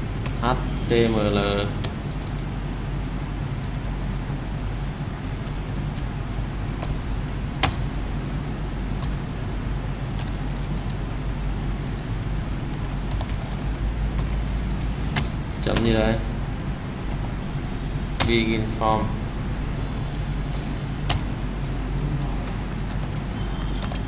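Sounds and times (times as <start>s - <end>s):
steady low hum: 0.0s - 24.0s
computer keyboard typing: 1.6s - 2.6s, 3.5s - 4.0s, 4.7s - 8.0s, 8.8s - 17.6s, 18.2s - 18.8s, 19.8s - 24.0s.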